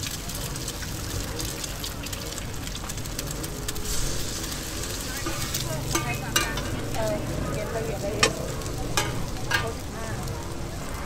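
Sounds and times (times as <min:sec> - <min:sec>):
eggs sizzling in oil: 0:00.0 - 0:11.0
metal spatula scraping a pan: 0:04.6 - 0:07.0, 0:08.1 - 0:09.8.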